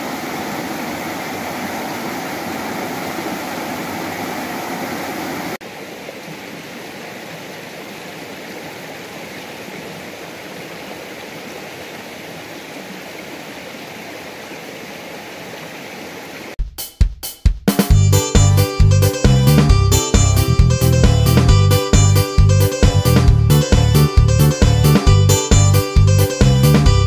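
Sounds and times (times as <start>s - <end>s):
river water rushing: 0.0s - 16.6s.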